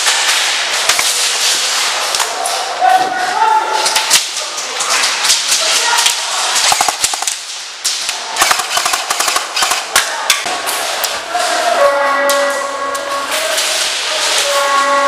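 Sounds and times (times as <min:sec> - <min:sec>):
airsoft guns firing: 0:05.3 - 0:10.5.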